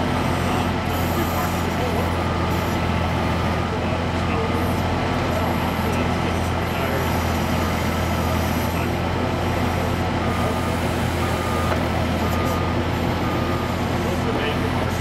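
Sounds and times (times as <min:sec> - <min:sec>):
diesel engine under load: 0:00.0 - 0:15.0
beeping tone: 0:10.2 - 0:13.8.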